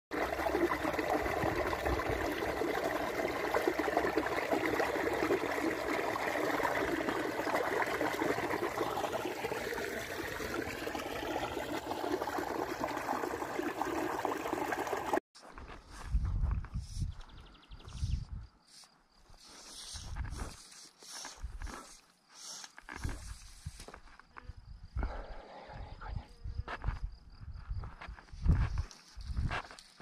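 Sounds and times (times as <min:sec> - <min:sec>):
stream trickling over rocks: 0:00.1 - 0:15.2.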